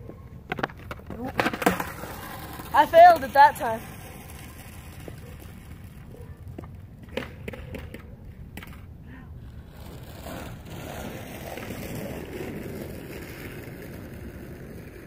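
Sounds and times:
skateboard clacks: 0.0 - 9.0, 9.7 - 15.0
skateboard wheels rolling on asphalt: 0.0 - 15.0.

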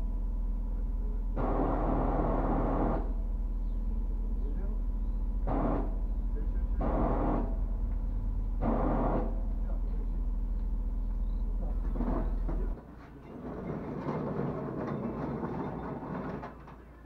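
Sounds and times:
steady low rumble: 0.0 - 12.8
clattering knocks of parts: 11.8 - 17.0.

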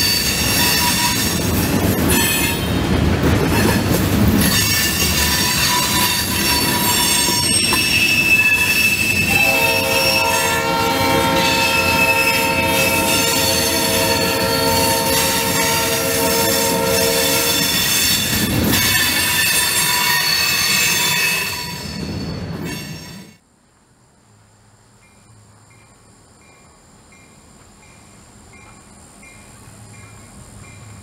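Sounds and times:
train wheel squeal: 0.0 - 2.8, 3.4 - 23.4
rail clatter: 0.0 - 23.4
locomotive horn chord: 9.3 - 17.5.

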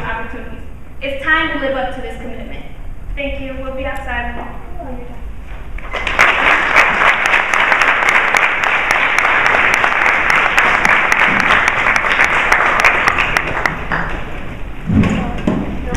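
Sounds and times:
crowd applauding: 5.8 - 14.4.

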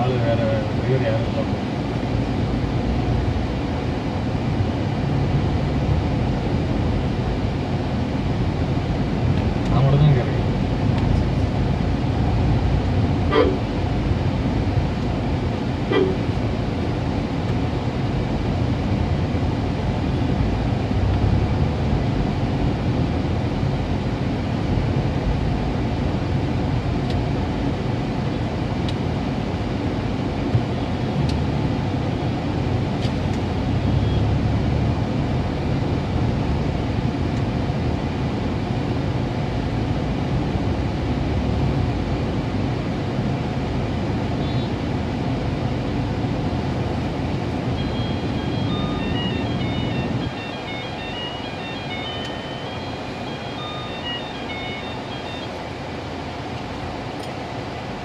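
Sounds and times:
car engine and road noise: 0.0 - 58.0
vehicle horn toots: 15.9 - 16.2.

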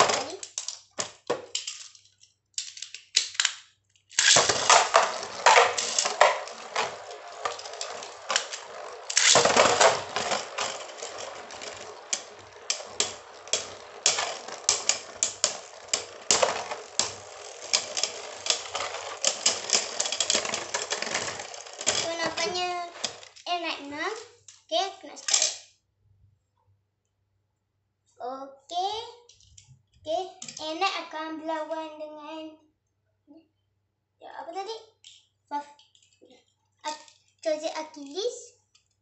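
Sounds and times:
spinning tops clattering in plastic bowl: 4.2 - 23.4.

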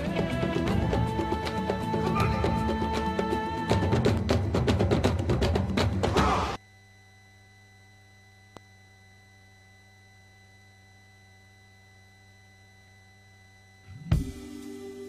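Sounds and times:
drum-heavy music: 0.0 - 6.6, 14.0 - 15.0
faint electronic hum: 6.6 - 15.0
click: 8.5 - 8.7.

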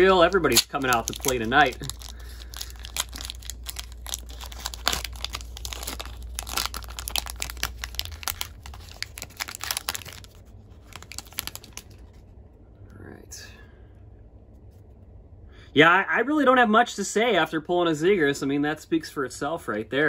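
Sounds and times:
wrapper crinkling and tearing: 0.0 - 12.0.

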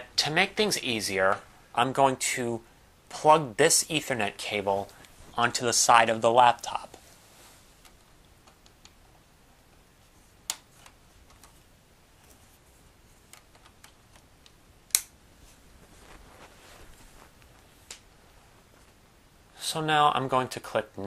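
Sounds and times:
cable handling ticks and rustling: 6.4 - 9.2, 10.0 - 19.0.

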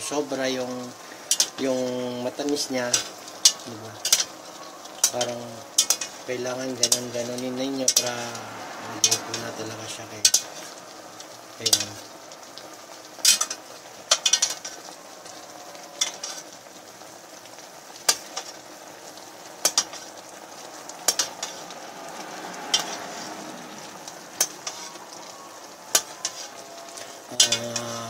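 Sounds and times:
sauce sizzling: 0.0 - 28.0
metal spoon clinking on pot: 5.0 - 6.2.

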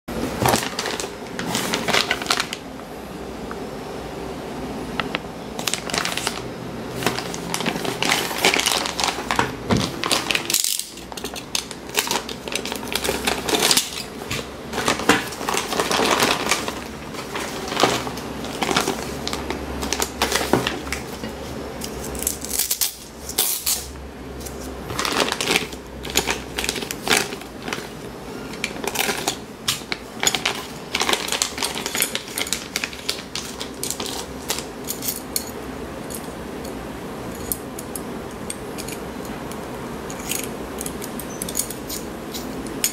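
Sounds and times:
plastic bags crinkling: 0.3 - 2.7, 5.6 - 21.3, 24.6 - 35.2.

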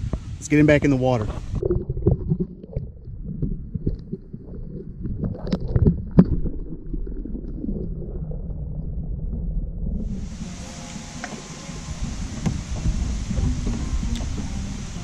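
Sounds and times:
muffled knocks on plastic kayak: 12.2 - 14.5.

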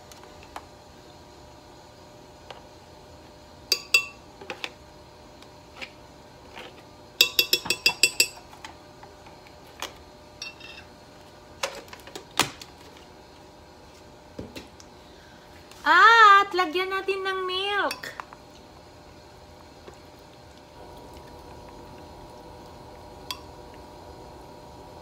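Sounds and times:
spoon clinking on container: 7.2 - 8.4.

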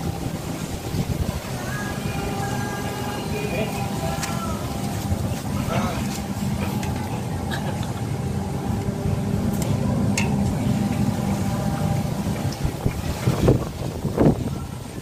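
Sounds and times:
motor humming: 0.0 - 15.0.

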